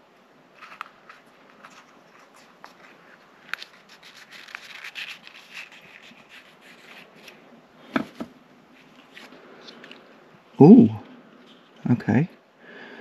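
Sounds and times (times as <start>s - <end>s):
hands rubbing and scraping eggs: 0.6s - 7.4s.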